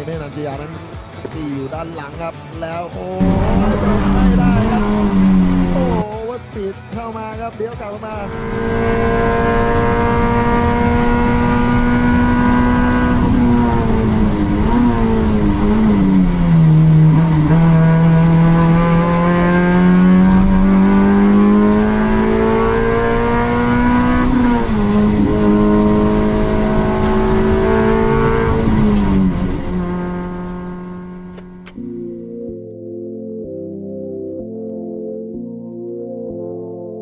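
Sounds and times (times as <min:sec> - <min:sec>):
race car engine accelerating: 0:03.2 - 0:06.0, 0:08.2 - 0:31.8.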